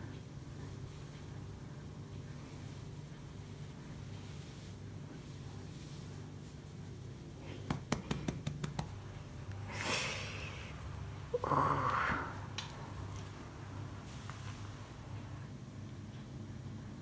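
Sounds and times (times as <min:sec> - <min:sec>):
low steady hum: 0:00.0 - 0:17.0
hand rubbing cat fur: 0:02.3 - 0:09.4, 0:13.7 - 0:15.2.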